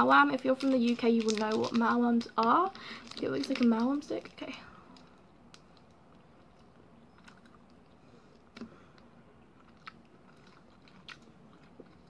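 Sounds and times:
chewing with mouth closed: 6.1 - 12.0.

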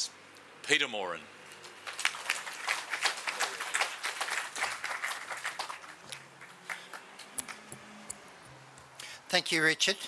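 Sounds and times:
audience applause: 1.8 - 7.7.

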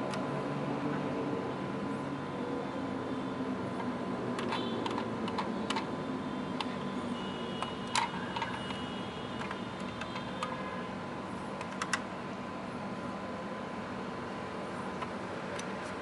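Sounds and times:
fingers clicking on toy car: 4.4 - 5.9, 7.6 - 8.8, 11.6 - 12.0.

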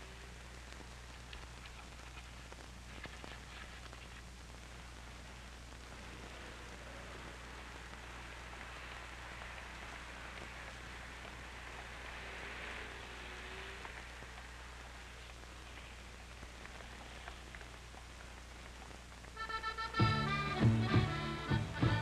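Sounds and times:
faint crackles: 0.0 - 21.6
film soundtrack hiss and hum: 0.0 - 22.0.

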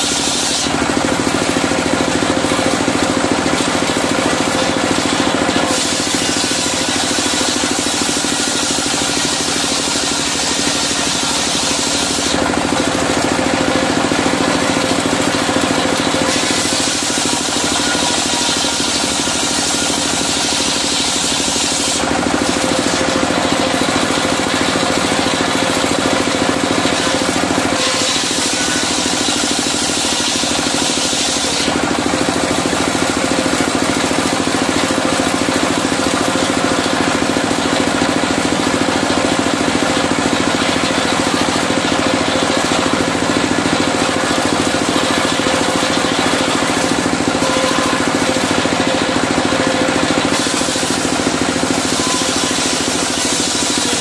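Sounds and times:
saw blade hissing through timber: 0.0 - 0.8, 5.6 - 12.4, 16.2 - 23.0, 26.9 - 31.7
diesel engine running: 0.0 - 54.0.

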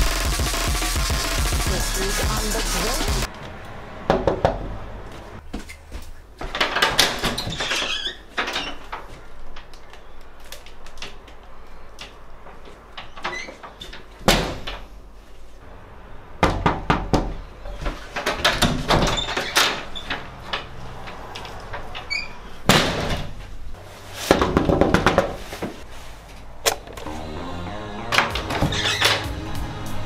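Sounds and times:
banging and rattling against door: 6.4 - 9.1, 16.4 - 23.6, 24.3 - 25.8
door slamming shut: 22.0 - 23.4.

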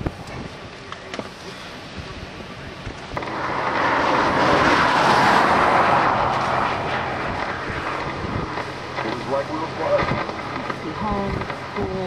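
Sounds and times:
vehicle passing on highway: 3.1 - 11.8.

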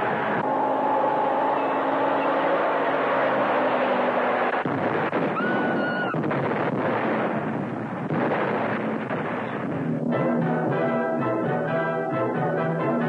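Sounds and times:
car engine running: 0.0 - 10.0
falling rock crashing: 4.6 - 9.9.

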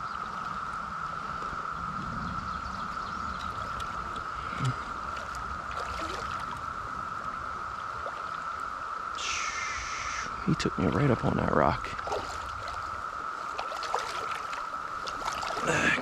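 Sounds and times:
cicada chorus drone: 0.0 - 16.0
water rushing in stream: 3.3 - 16.0.

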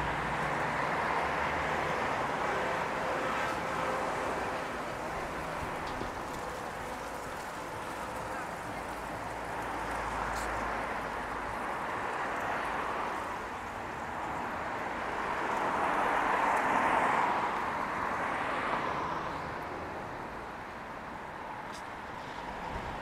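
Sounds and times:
passing vehicles: 0.0 - 23.0.

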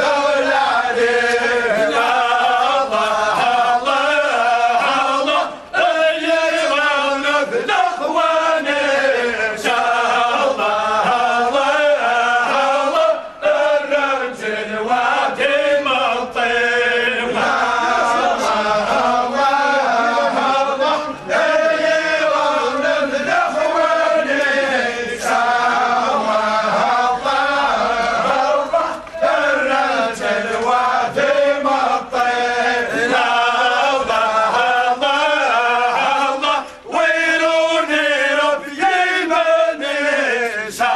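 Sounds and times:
men chanting in unison: 0.0 - 40.9.

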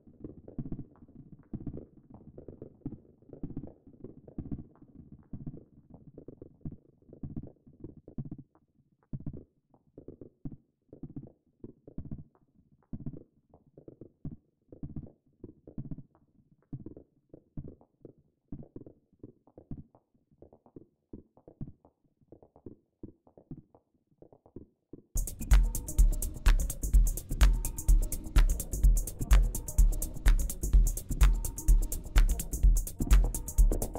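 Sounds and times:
percussive synthesizer hits: 25.2 - 33.9.

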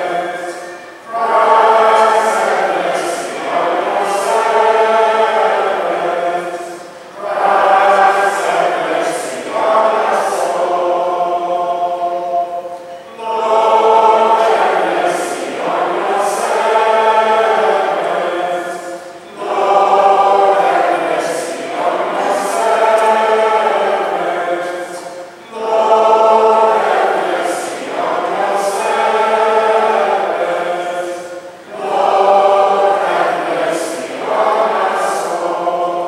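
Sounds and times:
congregation singing a chant: 0.0 - 36.0.

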